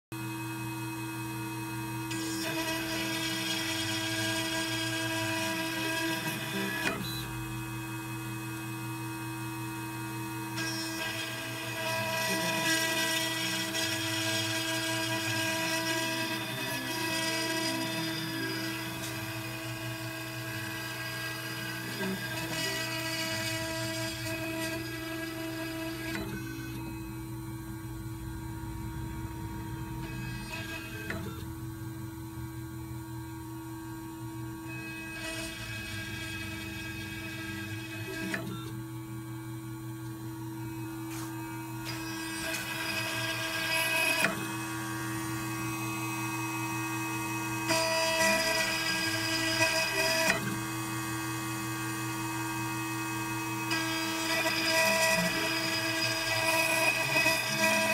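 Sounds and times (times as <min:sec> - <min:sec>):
engraving machine motor whine: 0:00.2 - 0:57.9.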